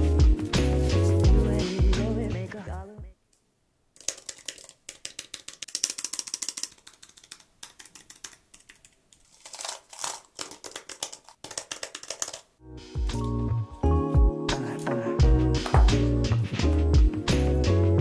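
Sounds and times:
clicky keyboard typing: 4.0s - 9.0s, 10.6s - 12.4s.

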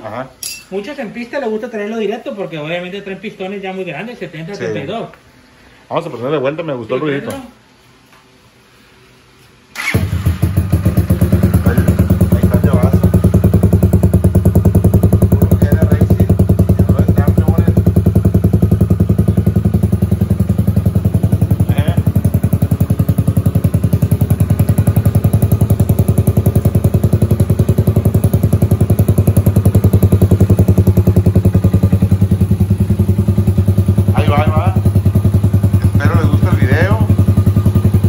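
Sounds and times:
motorcycle engine idling: 9.9s - 38.0s.

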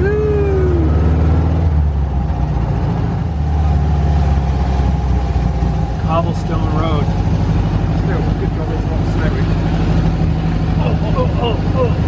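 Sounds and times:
dune buggy engine droning: 0.0s - 12.0s.

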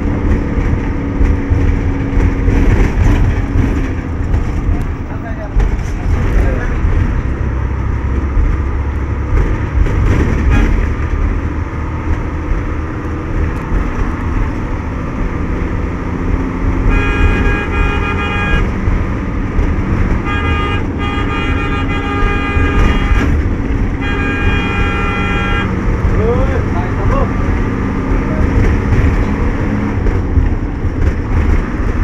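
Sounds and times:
engine and road rumble: 0.0s - 32.0s
vehicle horn blasts: 16.8s - 18.8s, 20.2s - 23.4s, 24.0s - 25.8s.

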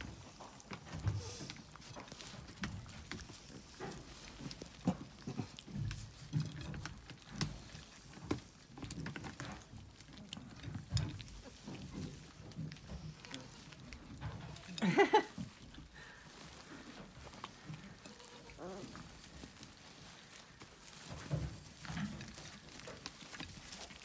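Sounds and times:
puppies smacking and lapping: 0.0s - 24.0s
puppies grunting: 1.0s - 8.1s, 11.3s - 20.0s.

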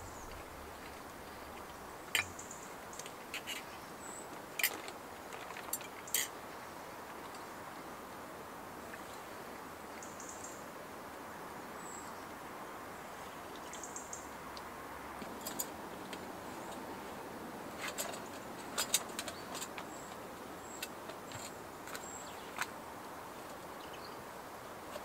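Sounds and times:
steady soft hiss: 0.0s - 25.0s.

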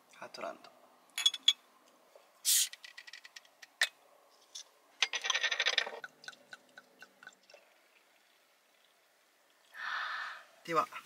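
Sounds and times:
bottle cap hiss: 2.4s - 2.8s.

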